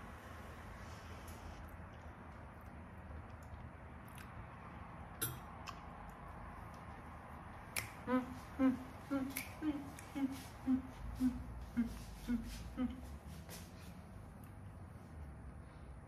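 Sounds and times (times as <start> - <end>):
woman humming a tune: 8.0 - 13.2.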